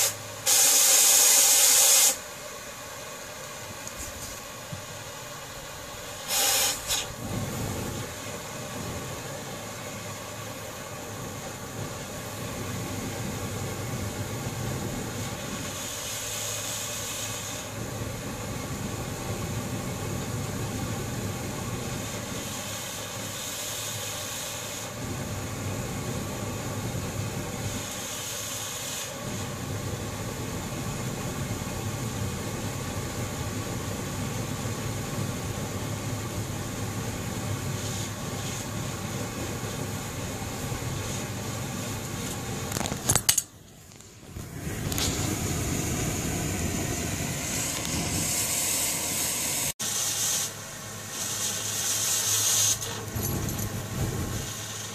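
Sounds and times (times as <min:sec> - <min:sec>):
compressed air hiss: 0:00.0 - 0:02.4, 0:06.0 - 0:08.3, 0:15.0 - 0:17.8, 0:21.9 - 0:25.1, 0:27.6 - 0:29.6, 0:37.4 - 0:42.0, 0:44.4 - 0:53.2, 0:54.0 - 0:54.9
powder flaring hiss: 0:00.0 - 0:54.9
propane torch flame rushing: 0:00.0 - 0:54.9.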